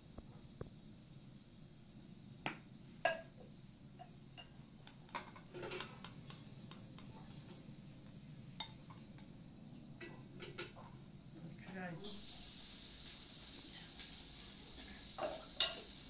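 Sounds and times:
metal spoon clinking on bowls: 15.2 - 15.8.

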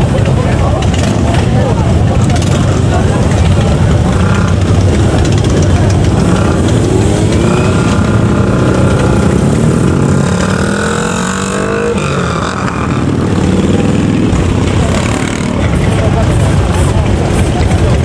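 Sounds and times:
motorcycle engines running: 0.0 - 18.0
motorcycles accelerating past: 2.2 - 16.3.

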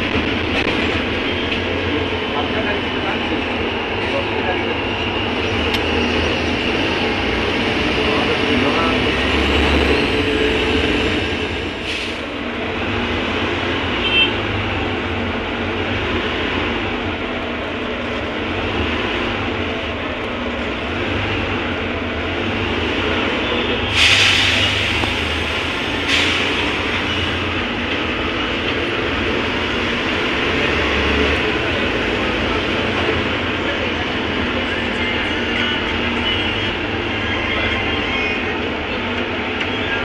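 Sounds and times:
bus engine and road rumble: 0.0 - 40.0
air hiss: 23.9 - 26.7.

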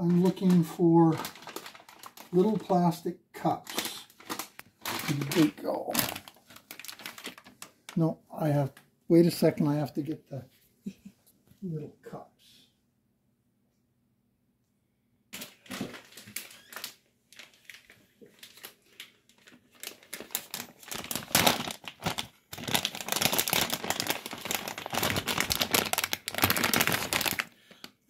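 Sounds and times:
packaging crinkling and rustling: 0.0 - 8.8, 15.3 - 28.0.

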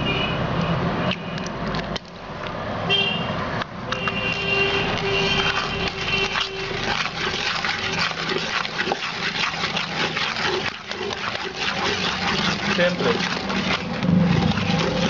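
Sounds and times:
batter being stirred in bowl: 4.0 - 15.0.

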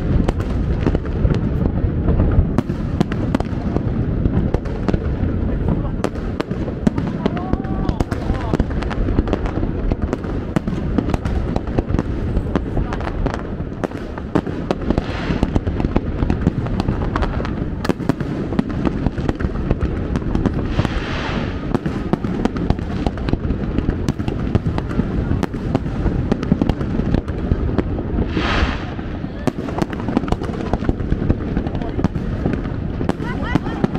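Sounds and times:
fireworks bangs and crackles: 0.0 - 33.9
low rumble: 27.5 - 31.9.

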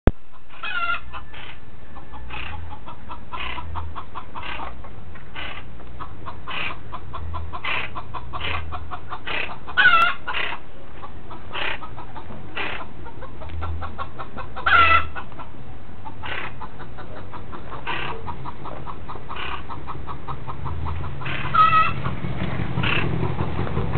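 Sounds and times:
bird calling: 0.3 - 22.2, 22.8 - 23.2.

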